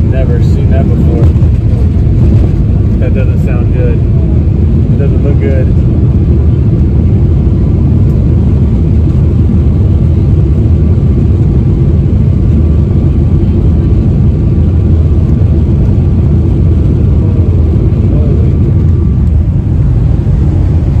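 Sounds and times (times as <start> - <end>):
faint steady whine: 0.0 - 21.0
jet airliner roar in cabin: 0.0 - 21.0.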